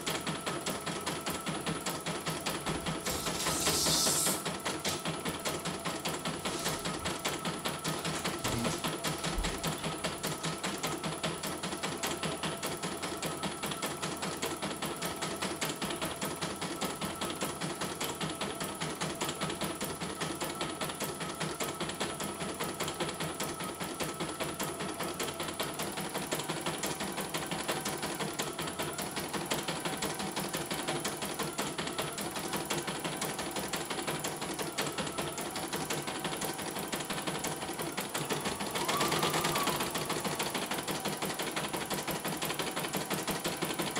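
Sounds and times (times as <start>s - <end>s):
machine motor tone: 38.5s - 40.8s.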